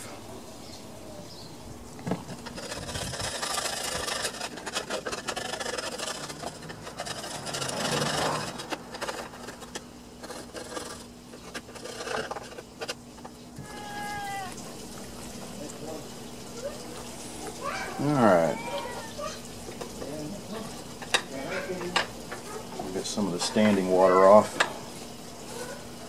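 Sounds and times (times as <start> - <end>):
hands rubbing and scraping: 2.1 - 13.0.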